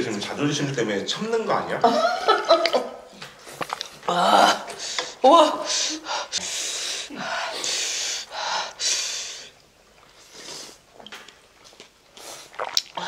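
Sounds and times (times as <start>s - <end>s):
sharp hissing breaths through mouth: 4.7s - 9.6s, 10.2s - 10.9s
mouth clicks: 11.0s - 13.0s.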